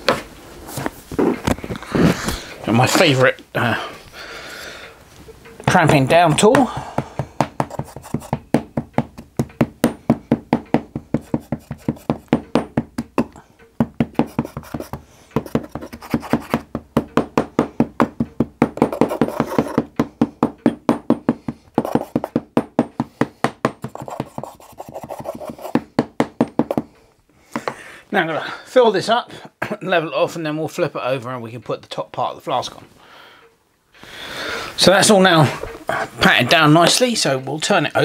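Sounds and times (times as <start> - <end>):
wooden block pounding sand: 5.7 - 27.0.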